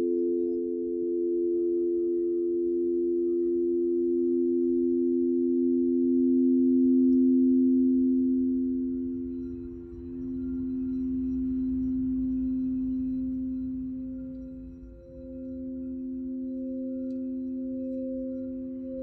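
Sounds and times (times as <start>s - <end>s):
crystal singing bowls ringing: 7.8s - 19.0s.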